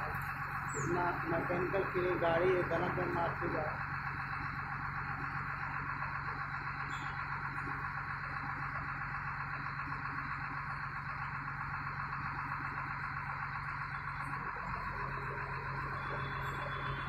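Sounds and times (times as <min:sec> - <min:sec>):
crane engine low hum: 0:00.0 - 0:17.0.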